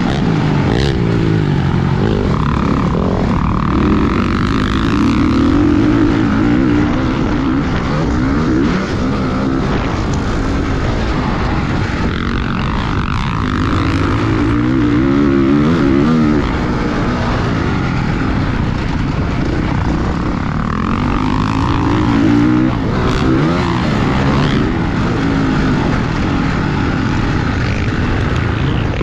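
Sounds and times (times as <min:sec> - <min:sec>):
dirt bike engine revving: 0:00.0 - 0:29.0.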